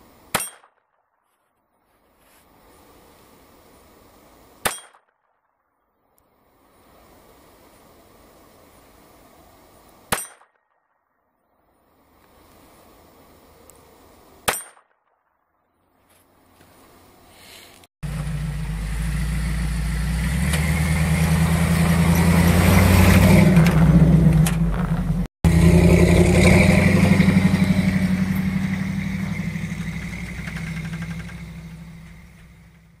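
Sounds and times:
vehicle engine driving past: 18.0s - 33.0s.

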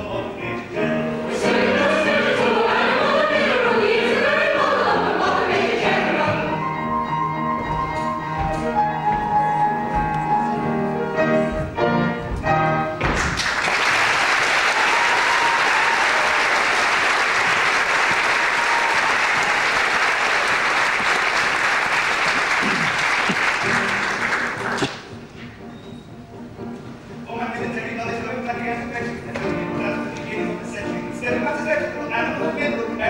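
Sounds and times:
choir and piano: 0.0s - 13.0s
audience applauding: 13.1s - 25.0s.

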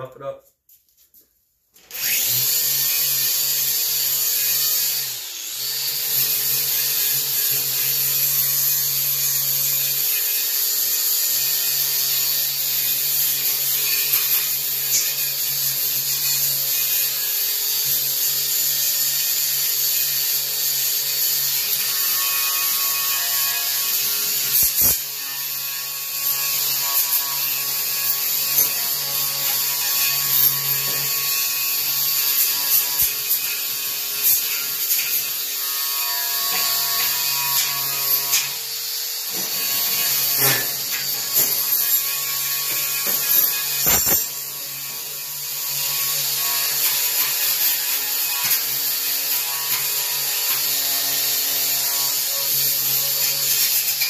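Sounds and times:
wire wheel grinder scrubbing metal: 19.7s - 54.0s.

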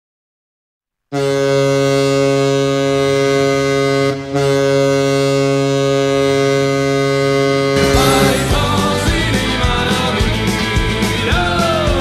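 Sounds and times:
deep goal horn blasting: 1.2s - 9.6s.

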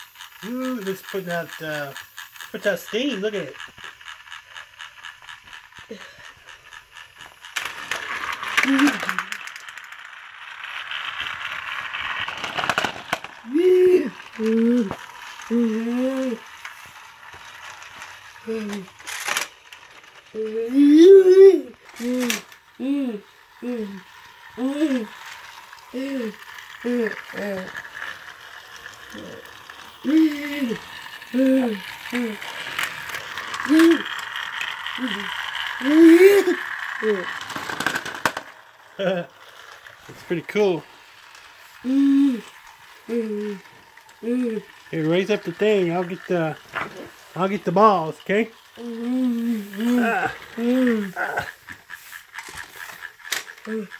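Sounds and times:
fine clicks and rattles: 0.0s - 53.9s
toy steam effect hissing: 0.0s - 53.9s.

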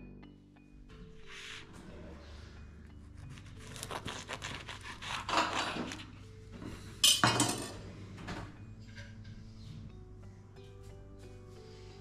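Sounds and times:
knife clattering down: 7.0s - 7.8s.

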